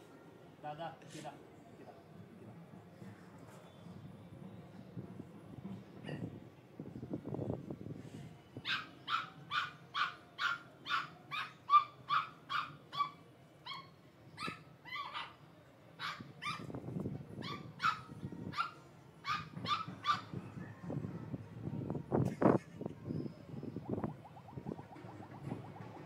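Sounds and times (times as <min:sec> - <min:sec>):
puppy barking high-pitched: 0:08.7 - 0:15.4.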